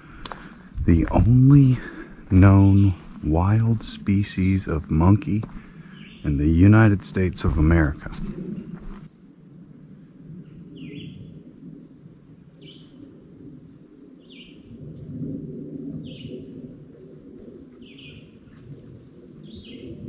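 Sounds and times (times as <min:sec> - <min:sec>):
low rustling: 0:00.0 - 0:09.1
high insect drone: 0:00.0 - 0:20.0.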